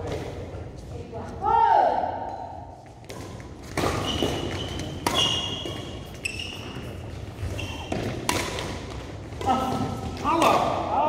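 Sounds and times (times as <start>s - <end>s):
racket hitting shuttlecock: 3.0s - 10.9s
shoe squeaks on court floor: 3.9s - 8.2s.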